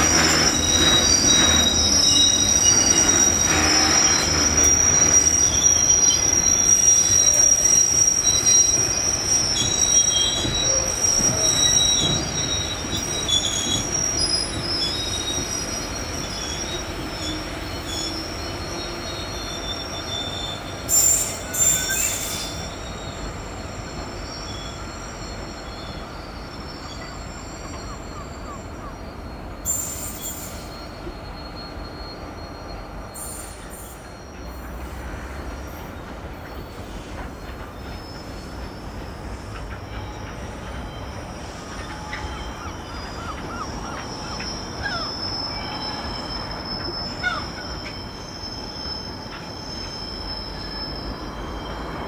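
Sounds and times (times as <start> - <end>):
wheels squealing high-pitched: 0.0 - 52.0.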